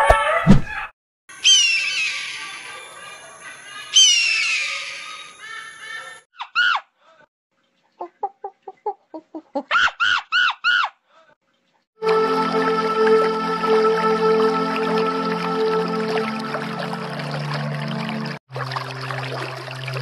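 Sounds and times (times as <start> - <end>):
animal cries: 1.4 - 2.7, 3.9 - 6.9
animal squeals: 1.4 - 2.8, 3.9 - 6.8
animal chirping: 1.4 - 6.8.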